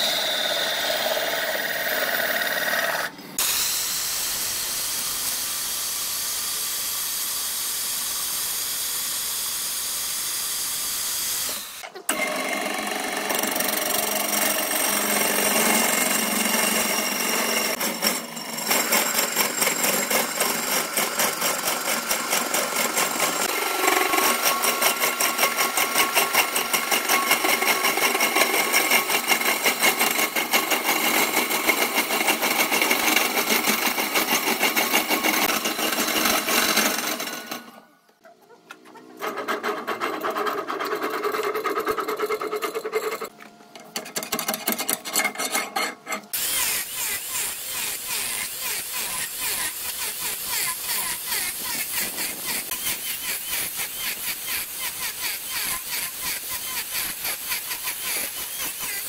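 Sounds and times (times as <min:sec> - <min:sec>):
wood lathe hissing: 0:00.0 - 0:37.8, 0:46.3 - 0:59.0
lathe and tool rattle: 0:11.5 - 0:37.8, 0:39.2 - 0:43.3, 0:44.0 - 0:59.0.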